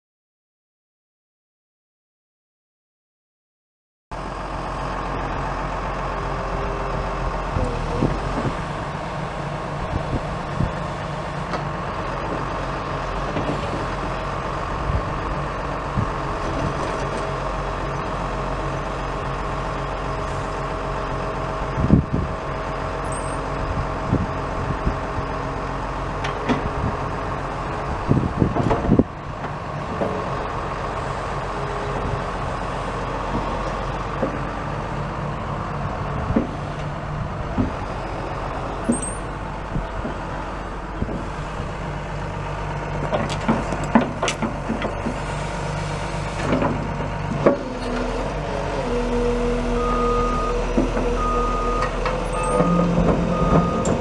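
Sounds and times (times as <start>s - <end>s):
excavator diesel engine running: 4.1s - 54.0s
metal clanks and knocks: 38.8s - 39.4s, 43.0s - 45.2s.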